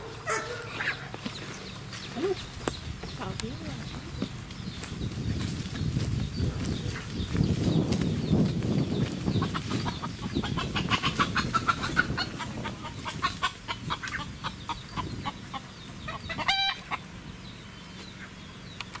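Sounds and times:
chicken clucking: 0.0 - 4.3, 9.0 - 17.1
chicken squawk: 0.2 - 1.2, 9.4 - 17.0.

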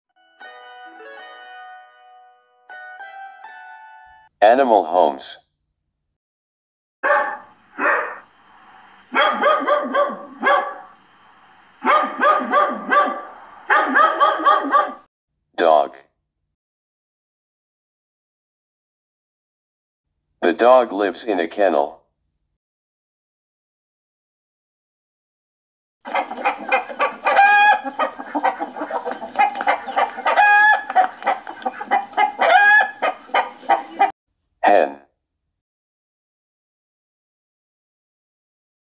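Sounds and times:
dog barking: 7.0 - 8.3, 9.1 - 11.0, 11.8 - 15.1
hen clucking: 26.1 - 34.1
hen squawking: 26.1 - 34.1.

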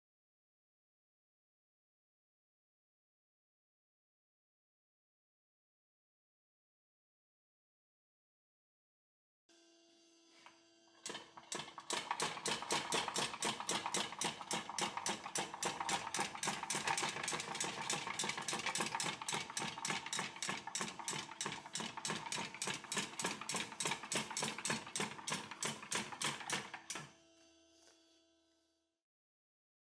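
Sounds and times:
hand-cranked chopper clacking: 11.0 - 27.1.

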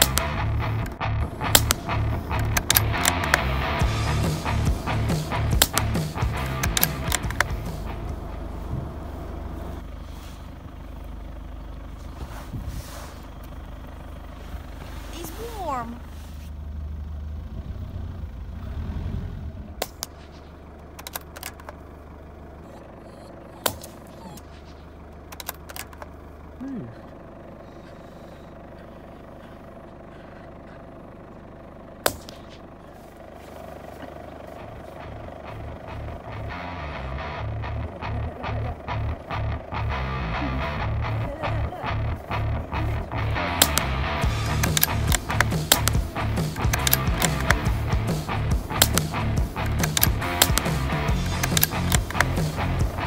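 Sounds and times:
vehicle engine idling: 0.0 - 53.0
rifle shot: 32.0 - 32.6.

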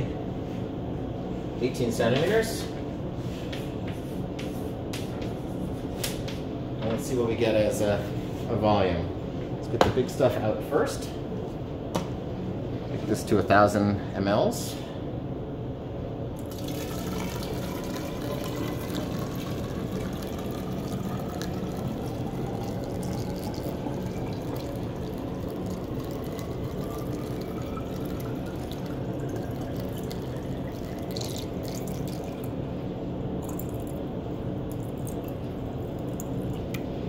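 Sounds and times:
water trickling into a cylinder: 16.4 - 32.7, 33.3 - 36.9.

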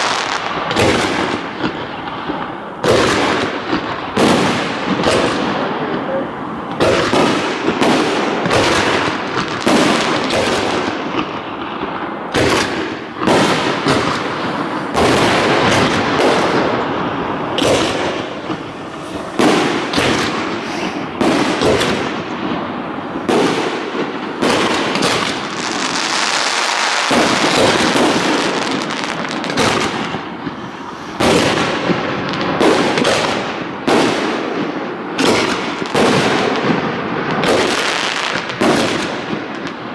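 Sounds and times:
fireworks hiss: 0.0 - 2.1, 6.3 - 34.5
fireworks bangs and crackle: 0.0 - 39.9.

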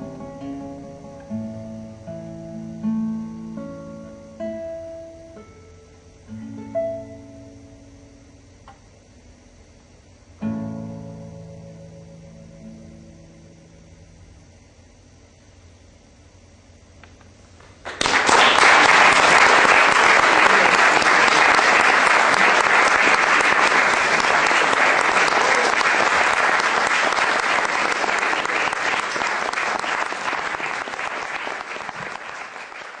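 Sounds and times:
audience applauding: 17.8 - 33.0.

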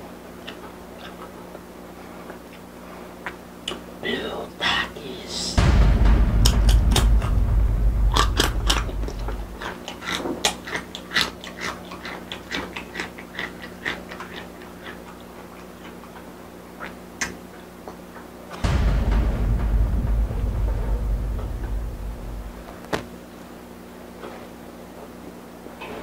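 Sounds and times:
low rumble: 5.6 - 9.8, 18.6 - 22.9.

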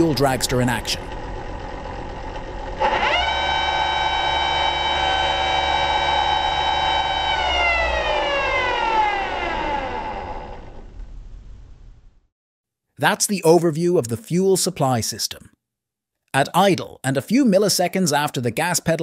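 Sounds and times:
fuel pump whine: 0.0 - 12.3.

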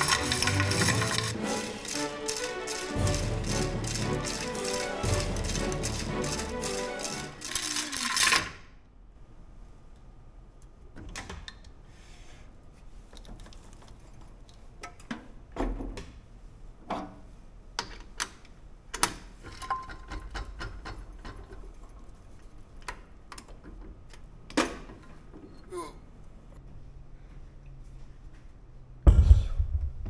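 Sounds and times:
hard objects clicking and clacking: 0.0 - 8.6.

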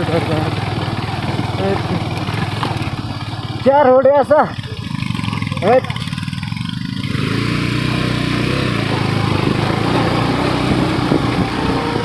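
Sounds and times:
motorcycle engine under load: 0.0 - 12.0.

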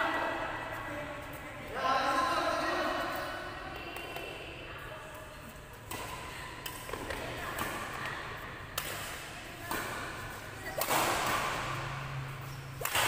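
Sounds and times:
rackets hitting shuttlecock: 5.6 - 13.0.

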